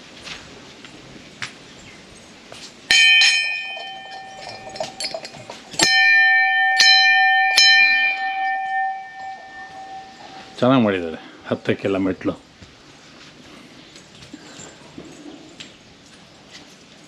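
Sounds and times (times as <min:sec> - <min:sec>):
brass bell ringing: 0:02.9 - 0:11.0.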